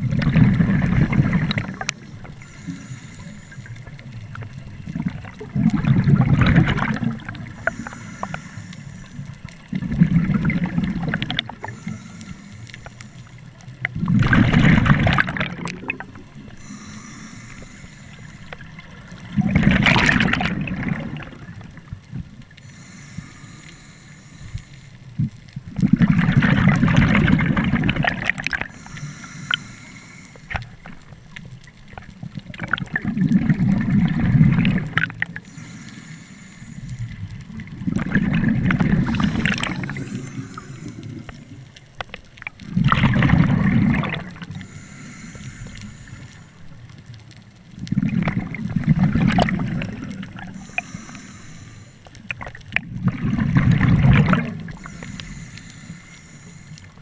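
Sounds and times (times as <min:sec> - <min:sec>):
exhaled bubbles rushing: 0:00.0 - 0:02.4, 0:04.8 - 0:07.7, 0:09.7 - 0:11.8, 0:14.0 - 0:16.6, 0:18.6 - 0:21.9, 0:25.7 - 0:28.7, 0:32.4 - 0:35.4, 0:37.5 - 0:41.2, 0:42.4 - 0:44.7, 0:47.8 - 0:50.6, 0:52.4 - 0:54.9
regulator inhalation hiss: 0:02.0 - 0:04.0, 0:07.5 - 0:09.4, 0:11.6 - 0:13.4, 0:16.6 - 0:18.9, 0:22.6 - 0:25.1, 0:28.7 - 0:30.7, 0:35.4 - 0:37.2, 0:39.0 - 0:41.7, 0:44.6 - 0:46.7, 0:50.5 - 0:52.2, 0:54.7 - 0:57.0.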